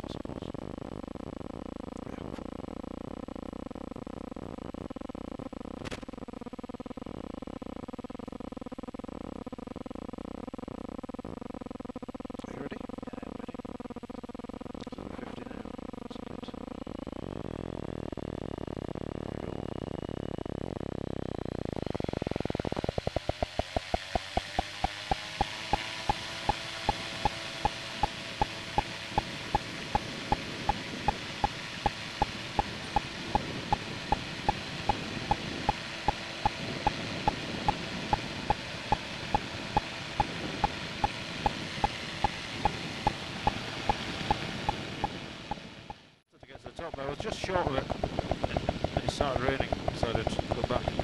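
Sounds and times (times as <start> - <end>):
light aircraft engine revving: 14.4 - 46.0, 46.7 - 51.0
sharp regular ticking: 22.0 - 46.0.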